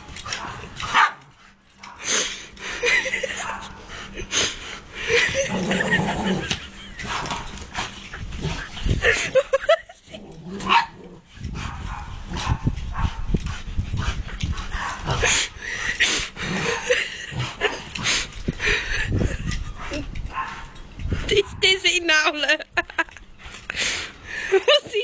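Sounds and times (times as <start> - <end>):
dogs barking: 0.3 - 2.2, 10.6 - 13.3, 20.3 - 20.8.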